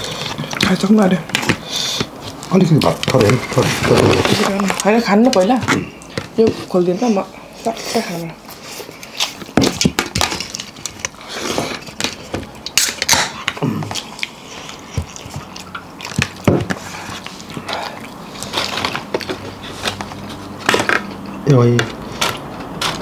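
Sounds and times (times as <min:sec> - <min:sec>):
chewing with sharp clicks: 0:12.6 - 0:20.3.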